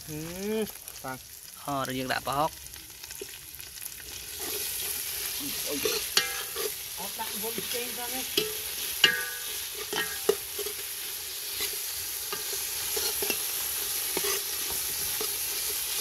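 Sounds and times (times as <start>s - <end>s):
food sizzling in oil: 0.0s - 16.0s
ladle clinking and scraping pot: 4.2s - 5.0s, 5.7s - 6.9s, 8.3s - 16.0s.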